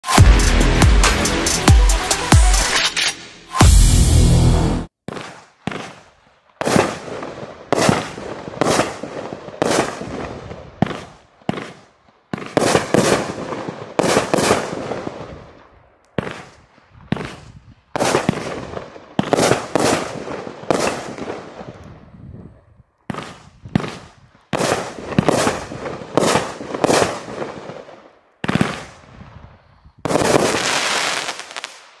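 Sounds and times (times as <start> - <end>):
firework crackling: 5.1 - 15.4, 30.1 - 32.0
firework bangs: 5.1 - 15.6, 16.2 - 21.8, 23.1 - 29.3, 30.0 - 32.0.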